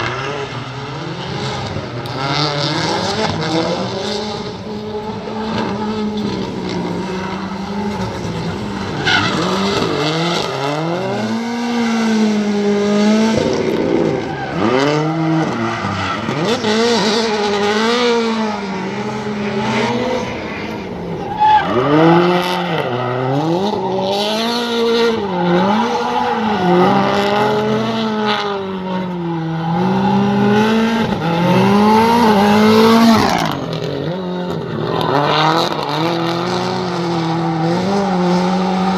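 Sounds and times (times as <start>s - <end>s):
car engine revving: 0.0s - 38.9s
tyre squeal: 20.4s - 22.1s.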